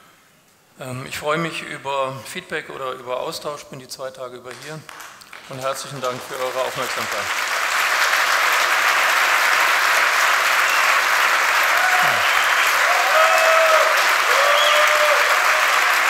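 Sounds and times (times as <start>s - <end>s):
audience applauding: 4.9s - 16.0s.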